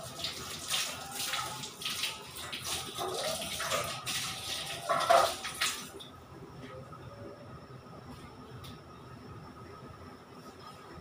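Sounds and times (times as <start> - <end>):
water running from a tap: 0.0 - 6.0.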